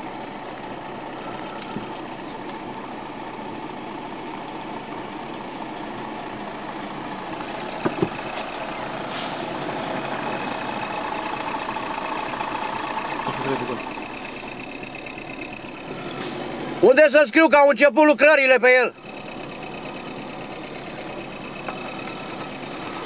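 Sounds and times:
diesel truck engine running: 0:00.0 - 0:23.0
knocks: 0:07.8 - 0:08.2
air brake hiss: 0:09.1 - 0:09.6.

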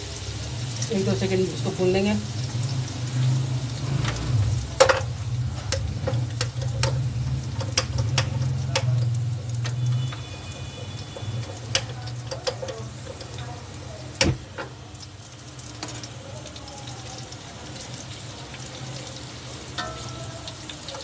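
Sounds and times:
oil popping and crackling: 0:00.0 - 0:21.0.

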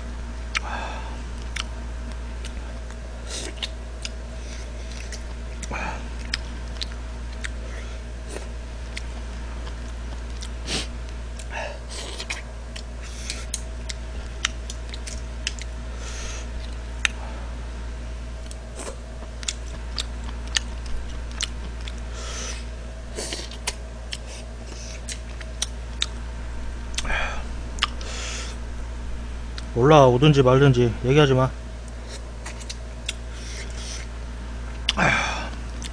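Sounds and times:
steady low hum: 0:00.0 - 0:35.9
chewing: 0:01.4 - 0:10.6, 0:11.3 - 0:15.8, 0:18.4 - 0:22.6, 0:23.2 - 0:26.2, 0:27.8 - 0:28.1, 0:31.9 - 0:34.1, 0:34.8 - 0:35.9.

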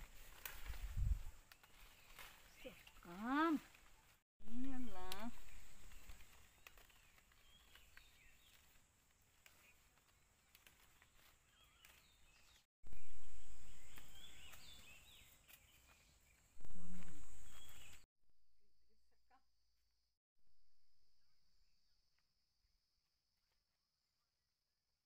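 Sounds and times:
bird chirps: 0:11.4 - 0:18.1.

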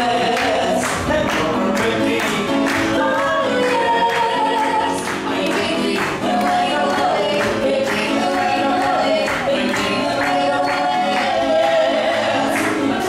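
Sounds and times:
voices singing together: 0:00.0 - 0:13.0.

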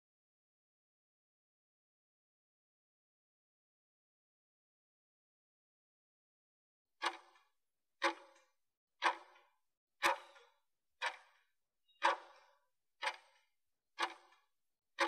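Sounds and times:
clock ticking: 0:07.0 - 0:07.4, 0:08.0 - 0:08.4, 0:09.0 - 0:11.4, 0:12.0 - 0:14.4.

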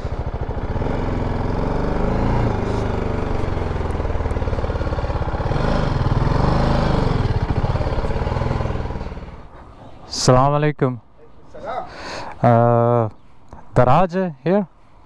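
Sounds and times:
motorcycle engine running: 0:00.0 - 0:09.6.

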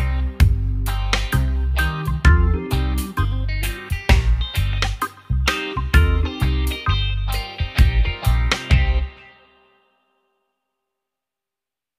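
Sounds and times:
background music with deep bass: 0:00.0 - 0:09.3.

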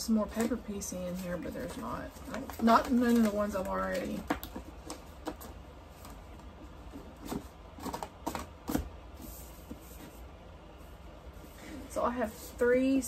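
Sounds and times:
cardboard boxes tapping and rustling: 0:01.7 - 0:10.1.

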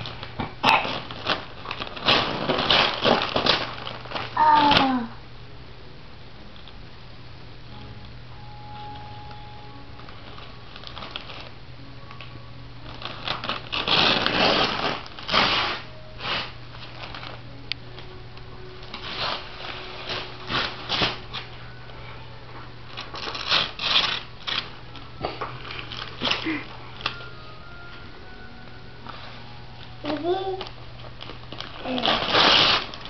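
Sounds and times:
wrapping paper crinkling and tearing: 0:00.0 - 0:05.1, 0:10.0 - 0:11.6, 0:12.2 - 0:17.5, 0:18.9 - 0:21.7, 0:22.9 - 0:27.6, 0:30.0 - 0:33.0
steady low hum: 0:00.0 - 0:33.0.

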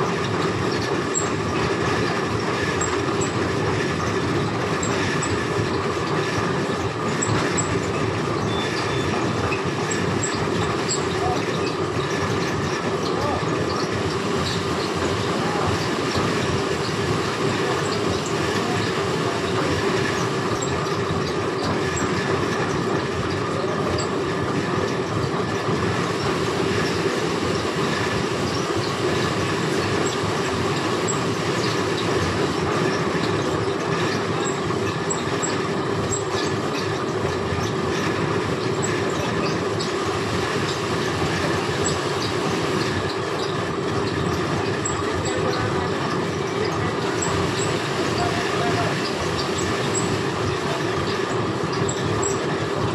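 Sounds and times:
fabric machine rumbling and rattling: 0:00.0 - 0:52.9.

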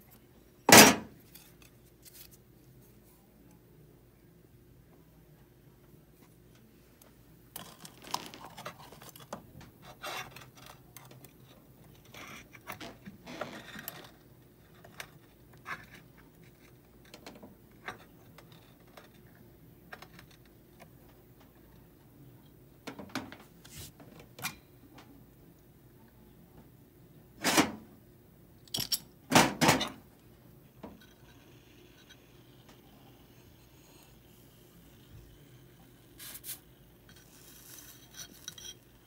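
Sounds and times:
metal tools clicking and scraping: 0:28.6 - 0:29.1, 0:37.1 - 0:39.0.

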